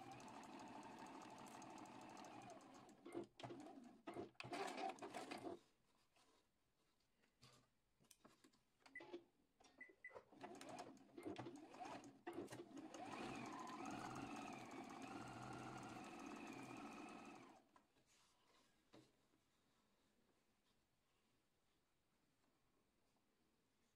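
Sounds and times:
sewing machine stitching: 0:00.0 - 0:05.6, 0:10.3 - 0:17.6.

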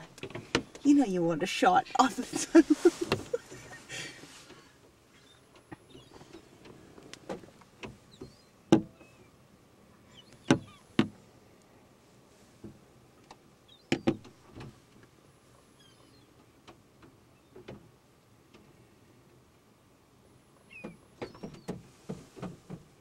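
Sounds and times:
faint high bird calls: 0:04.5 - 0:06.6, 0:08.1 - 0:09.4, 0:10.0 - 0:11.0, 0:15.6 - 0:16.4, 0:20.5 - 0:21.8.

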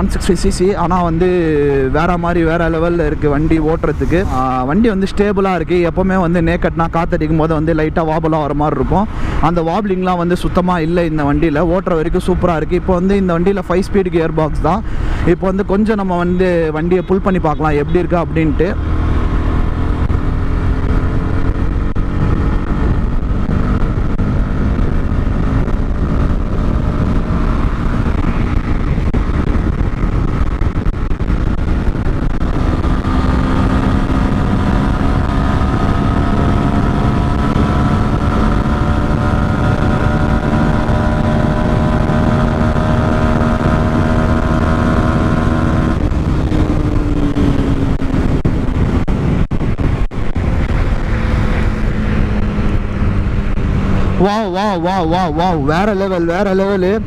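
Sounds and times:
wind on microphone: 0:00.0 - 0:57.0
motorcycle engine revving: 0:16.2 - 0:57.0.

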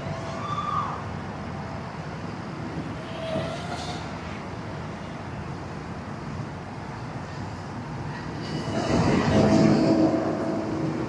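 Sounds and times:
wind rushing: 0:08.1 - 0:11.0.

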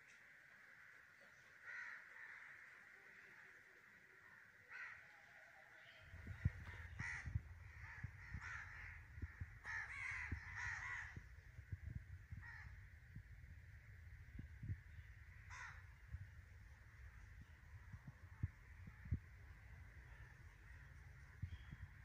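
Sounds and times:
crows cawing: 0:01.6 - 0:03.0, 0:04.6 - 0:05.5, 0:06.2 - 0:11.7, 0:12.3 - 0:13.0, 0:15.3 - 0:17.6
low rumble: 0:06.1 - 0:22.0.

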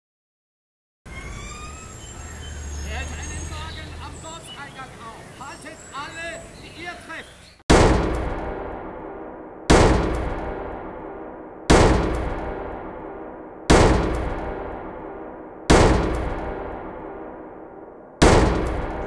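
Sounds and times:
heavy booming hits: 0:07.7 - 0:19.0.

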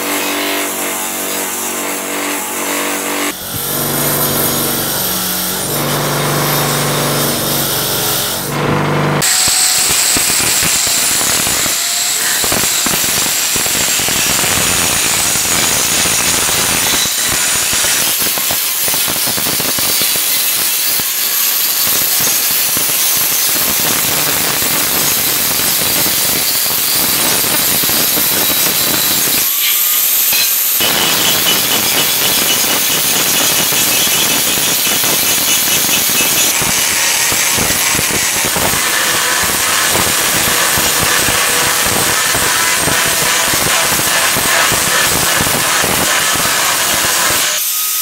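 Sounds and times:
angle grinder grinding steel: 0:00.0 - 0:48.0.

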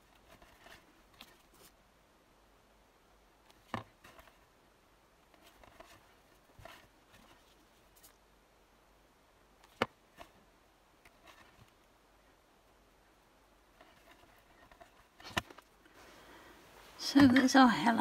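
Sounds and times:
faint clicks and rustles: 0:00.0 - 0:01.8, 0:03.4 - 0:04.5, 0:05.2 - 0:08.3, 0:09.6 - 0:12.4, 0:13.6 - 0:17.5.

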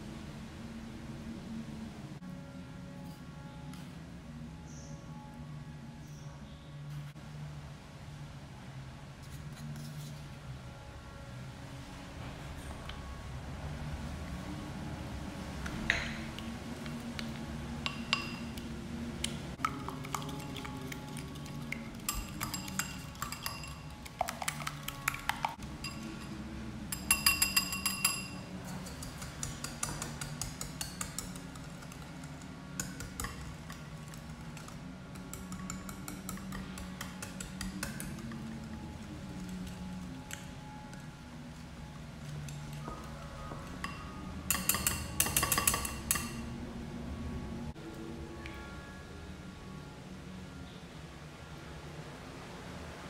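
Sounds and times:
spoon clinking against glass bowl: 0:17.8 - 0:18.6, 0:19.6 - 0:41.2, 0:42.2 - 0:46.5
whisk beating eggs in ceramic bowl: 0:19.6 - 0:26.1, 0:26.9 - 0:40.4, 0:43.8 - 0:46.4.

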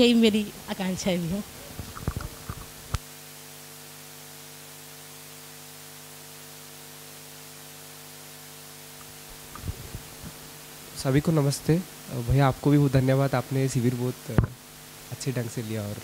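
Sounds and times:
electrical hum: 0:00.0 - 0:16.0.

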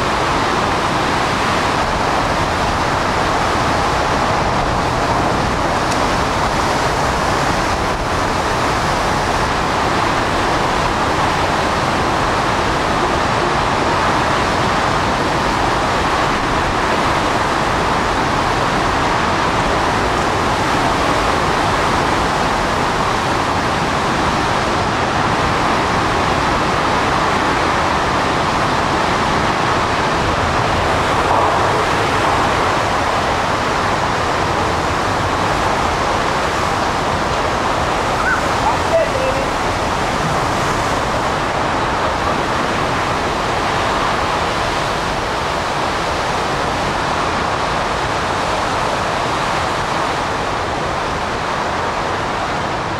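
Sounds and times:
driving rain: 0:00.0 - 0:52.9
strong wind roaring: 0:00.0 - 0:52.9.

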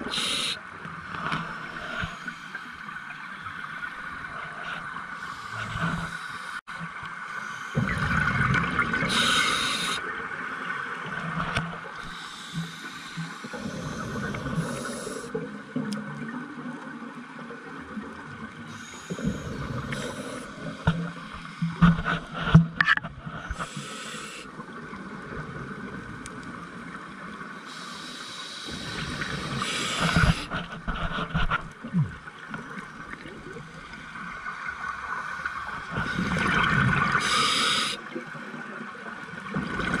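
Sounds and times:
regulator inhale hiss: 0:00.0 - 0:00.7, 0:09.1 - 0:10.0, 0:12.0 - 0:15.4, 0:18.7 - 0:20.8, 0:23.4 - 0:24.6, 0:27.7 - 0:30.6, 0:37.2 - 0:38.0
exhaled bubbles gurgling: 0:07.7 - 0:11.3, 0:31.8 - 0:40.0.

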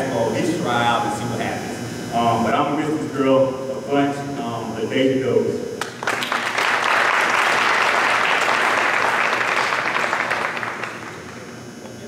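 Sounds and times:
audience applauding: 0:05.8 - 0:11.5.

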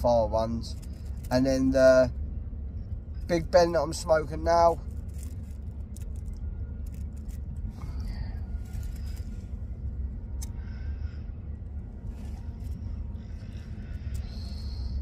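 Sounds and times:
rolling paper crinkling: 0:04.3 - 0:09.5.

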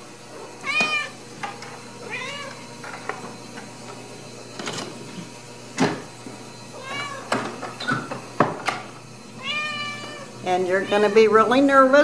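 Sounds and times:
cat meowing: 0:00.6 - 0:01.2, 0:02.1 - 0:02.6, 0:06.8 - 0:07.3, 0:09.4 - 0:11.4.

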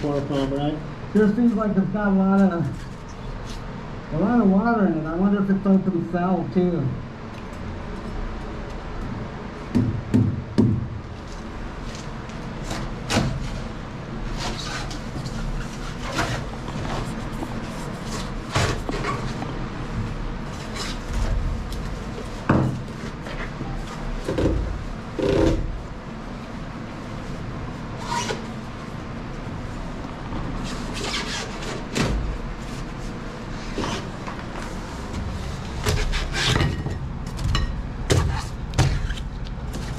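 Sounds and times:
hand tool knocking on fiberglass: 0:09.7 - 0:10.9.

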